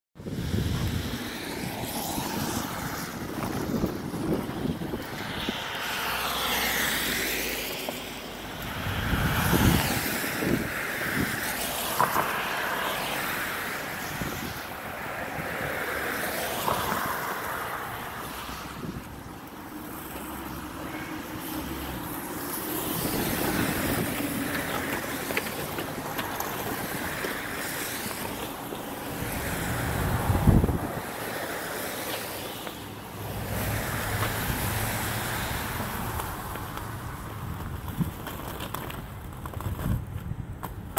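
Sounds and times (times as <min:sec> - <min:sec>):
plow blade scraping snow: 0:00.4 - 0:40.2.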